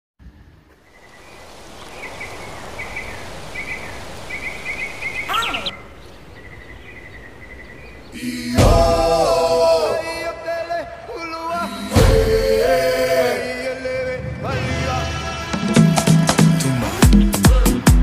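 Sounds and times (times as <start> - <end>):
small birds chirping: 0.2 - 8.5
outdoor background noise: 0.2 - 14.4.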